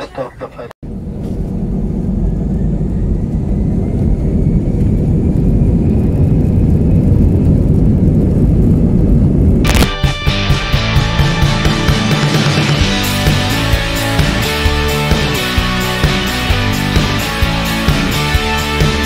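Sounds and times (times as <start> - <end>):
low rumble from runway: 0.5 - 19.0
jet engines at takeoff power: 0.9 - 9.7
faint whine climbing in pitch: 0.9 - 9.8.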